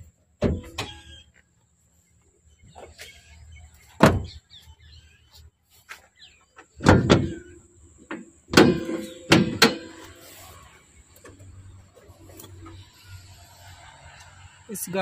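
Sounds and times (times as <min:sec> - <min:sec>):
car bonnet clunking: 0:00.4 - 0:01.2, 0:04.0 - 0:04.4, 0:06.5 - 0:10.2.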